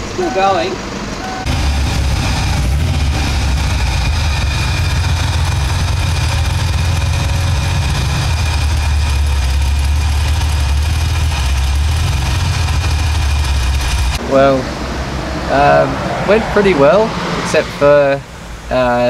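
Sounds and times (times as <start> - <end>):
car engine drone: 0.0 - 19.0
road noise inside car: 0.0 - 19.0.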